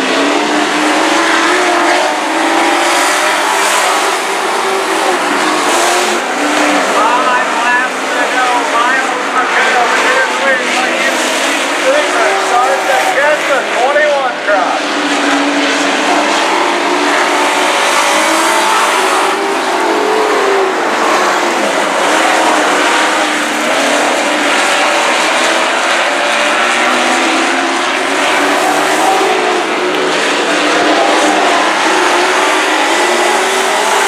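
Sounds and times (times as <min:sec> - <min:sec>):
race truck engines accelerating: 0:00.0 - 0:34.0.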